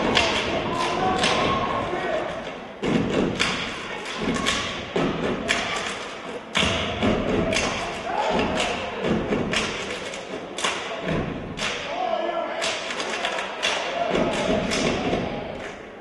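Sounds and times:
hands clapping: 0.0 - 12.0, 12.6 - 15.9
stomps on wooden stage: 2.8 - 5.6.

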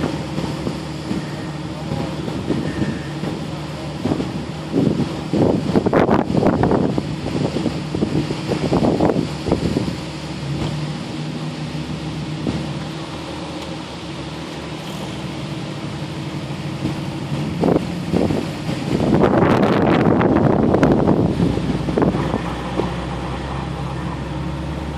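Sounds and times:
vehicle engine idling: 0.0 - 24.9
wind gusting on microphone: 2.0 - 11.3, 15.0 - 24.1.

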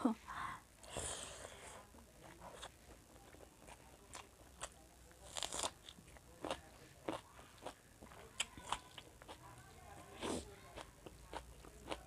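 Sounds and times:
person chewing food: 2.2 - 9.6, 10.2 - 12.0.

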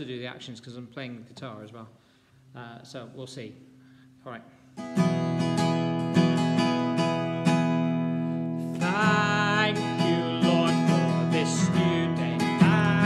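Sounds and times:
acoustic guitar strumming: 3.7 - 13.0
man singing: 8.7 - 13.0.

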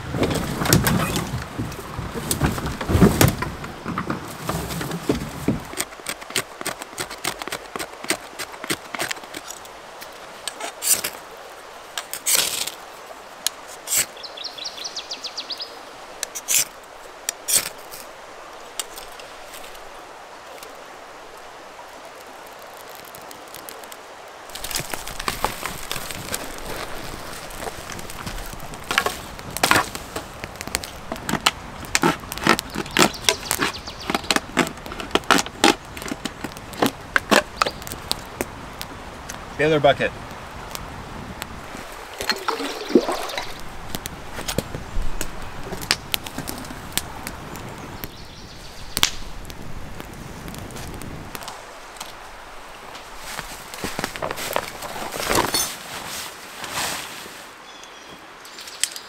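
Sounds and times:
campfire crackling and popping: 0.0 - 14.3, 15.9 - 55.5
scraping and clicking of ferro rod: 4.0 - 9.7, 10.5 - 11.2.

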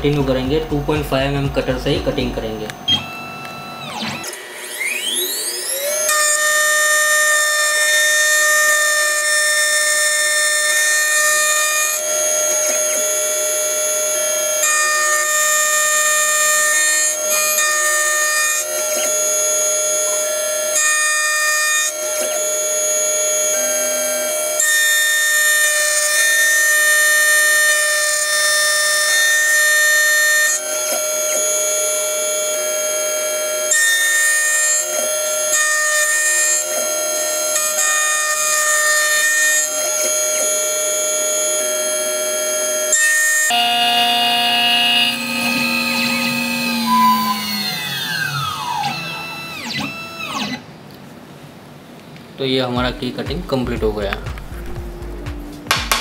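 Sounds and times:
key cutting machine spindle whining: 0.0 - 50.7.

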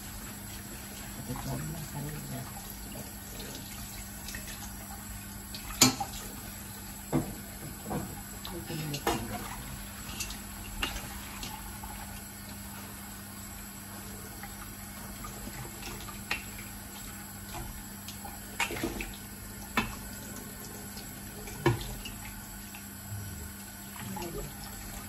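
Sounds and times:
water running into sink: 0.0 - 25.0.

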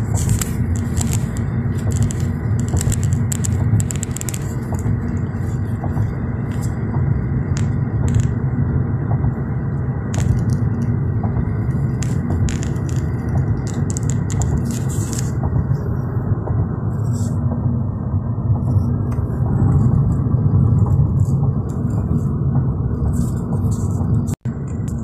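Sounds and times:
light crackles: 0.0 - 6.9, 7.5 - 8.4, 10.1 - 15.9
car road and tyre rumble: 0.0 - 25.0.

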